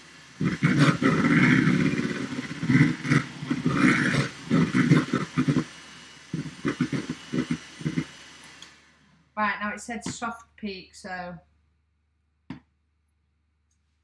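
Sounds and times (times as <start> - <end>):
electric hand mixer whirring: 0.0 - 9.3
dog growling: 0.4 - 5.7, 6.3 - 8.1.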